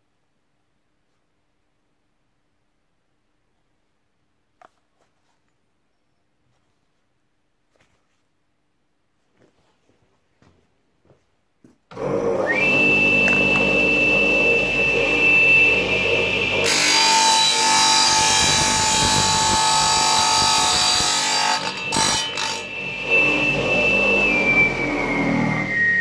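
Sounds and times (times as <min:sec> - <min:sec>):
tile saw motor whine: 0:11.9 - 0:26.0
saw blade grinding plastic: 0:16.6 - 0:22.8.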